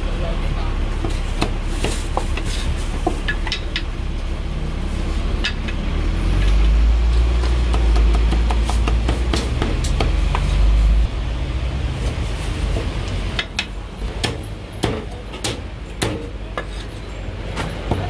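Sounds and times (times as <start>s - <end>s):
low steady rumble: 0.0s - 14.8s.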